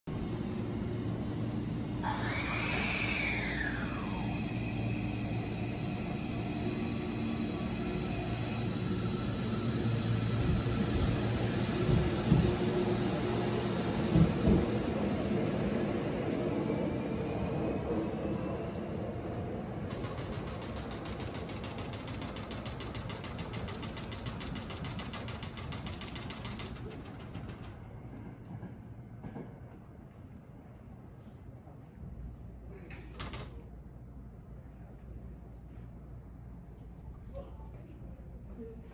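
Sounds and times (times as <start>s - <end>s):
electric train pulling away: 0.1s - 28.2s.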